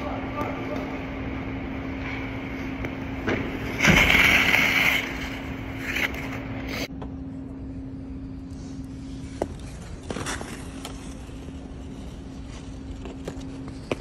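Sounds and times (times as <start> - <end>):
low hum: 0.0 - 14.0
skate scraping on ice: 3.6 - 6.9, 9.2 - 14.0.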